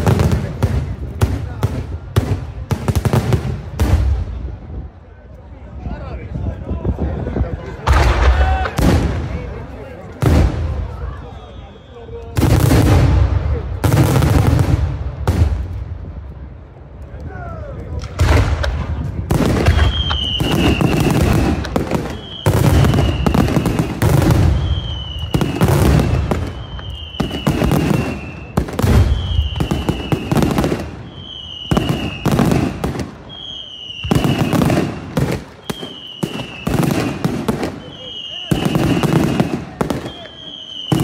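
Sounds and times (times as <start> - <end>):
fireworks bangs and crackling: 0.0 - 5.0, 6.5 - 41.0
falling whistle-like tone: 11.2 - 12.4, 33.3 - 34.5.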